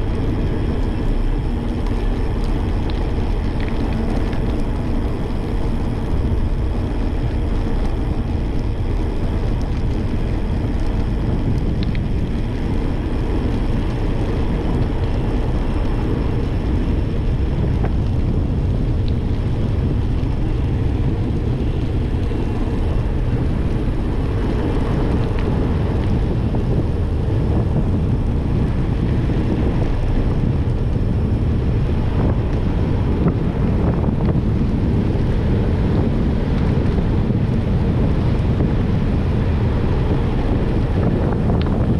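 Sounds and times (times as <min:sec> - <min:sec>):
wind noise on microphone: 0:00.0 - 0:41.9.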